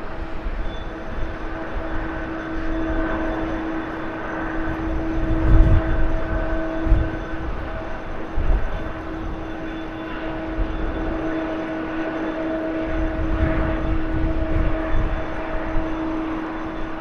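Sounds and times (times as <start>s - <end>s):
jet engines whining and roaring: 0.0s - 17.0s.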